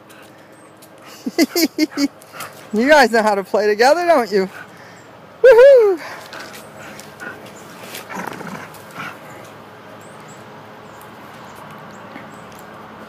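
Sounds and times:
paws scuffling on concrete: 0.0 - 3.4, 6.1 - 13.0
dog noises: 1.0 - 2.9, 6.0 - 10.3.

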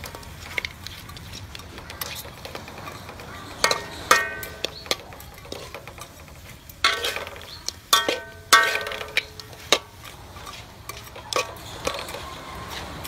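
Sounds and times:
metal spatula scraping wok: 0.0 - 13.0
ringing clangs on pan: 3.6 - 5.2, 6.8 - 9.4.

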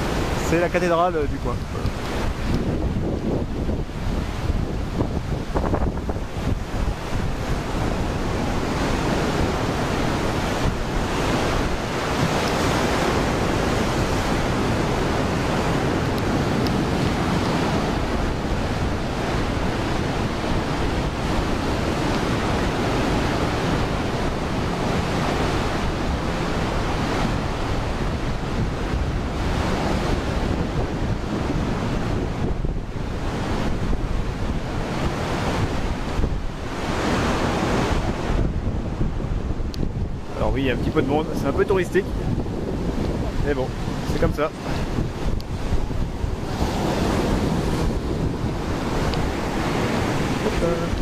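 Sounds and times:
waves breaking on beach: 0.0 - 51.0
wind buffeting microphone: 0.0 - 51.0.

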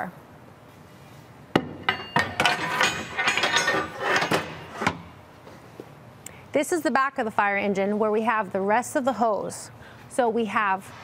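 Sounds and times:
metal hook clanking and rattling: 1.6 - 5.0
metallic ring: 1.6 - 5.0.

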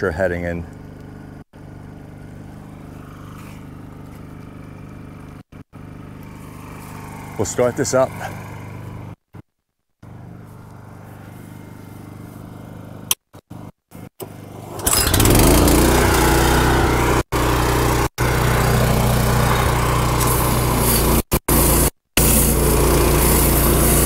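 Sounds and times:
pressure washer engine running: 0.4 - 9.1, 14.2 - 24.0.

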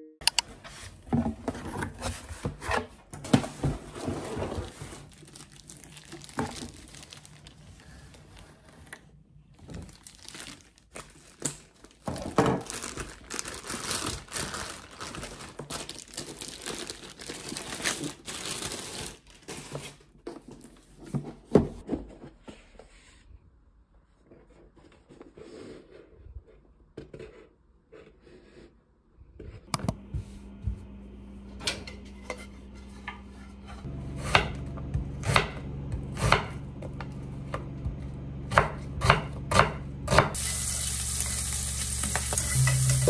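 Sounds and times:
cardboard and plastic rustling: 0.5 - 23.2.

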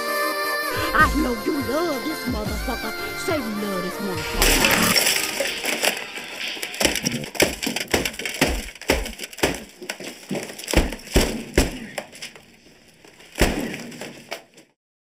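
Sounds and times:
desk objects crashing and clattering: 4.2 - 14.7.

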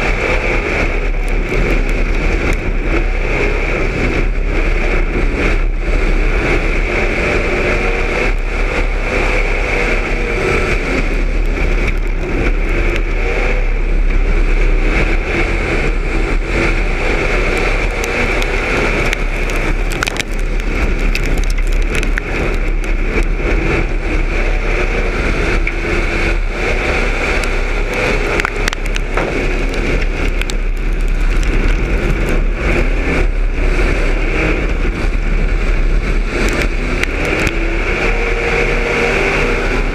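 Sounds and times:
sharp clicks and rattles: 0.0 - 3.0, 7.7 - 13.3, 16.0 - 24.0, 25.5 - 34.0, 35.7 - 37.7
race car engine running hard: 0.0 - 21.1, 22.0 - 39.9.

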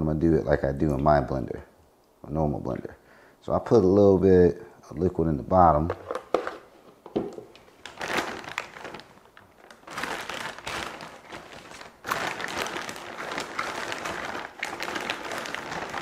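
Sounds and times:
plastic bag rustling: 7.4 - 16.0.

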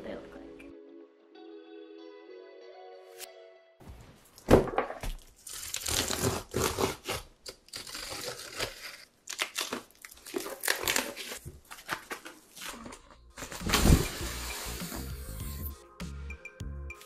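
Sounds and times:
packaging crinkling and tearing: 5.2 - 13.8.

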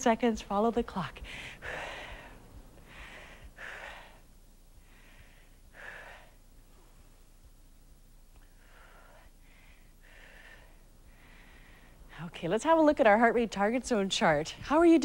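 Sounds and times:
woman breathing hard: 1.2 - 7.3, 8.4 - 12.1.

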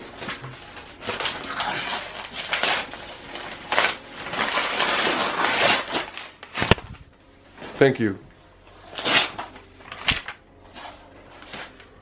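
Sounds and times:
packaging wrap crinkling: 0.0 - 7.1.

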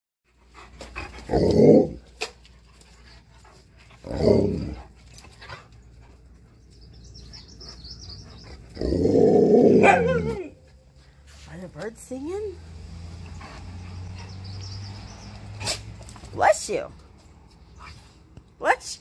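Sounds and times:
dogs growling in play: 0.9 - 2.2, 3.8 - 5.8, 8.0 - 10.4.

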